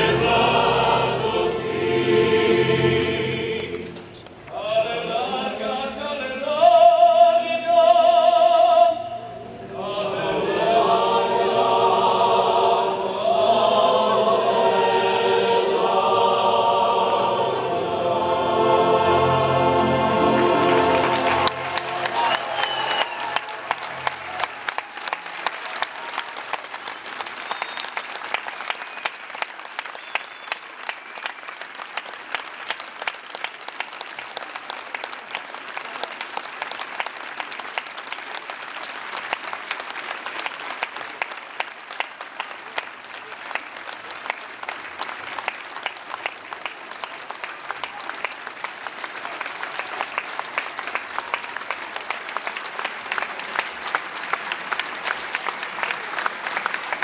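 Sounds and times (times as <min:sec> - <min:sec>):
orchestra and choir chord: 0:00.0 - 0:22.4
audience applauding: 0:19.3 - 0:57.0.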